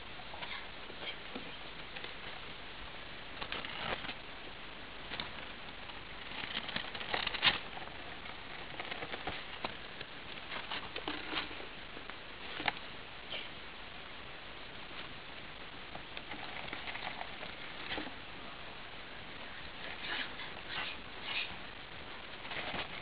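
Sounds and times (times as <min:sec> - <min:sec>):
steady hiss: 0:00.0 - 0:23.0
gerbils scratching: 0:03.4 - 0:04.3, 0:05.0 - 0:12.9, 0:15.9 - 0:18.3, 0:19.2 - 0:23.0.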